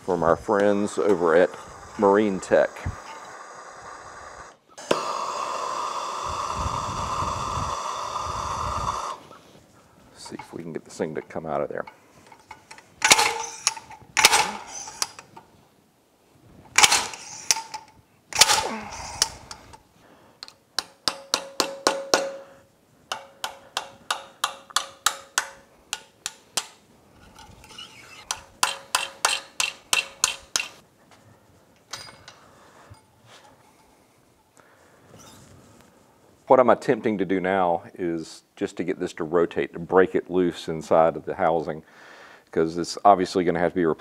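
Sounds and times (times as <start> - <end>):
slide hammer metal clang: 20.8 - 25.6.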